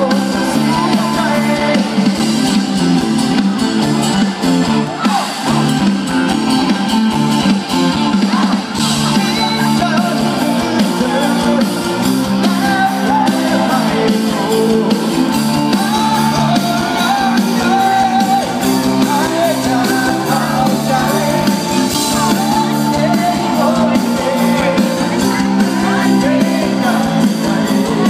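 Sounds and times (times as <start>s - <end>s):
person singing: 0.0s - 2.5s, 8.1s - 28.0s
live rock band: 0.0s - 28.0s.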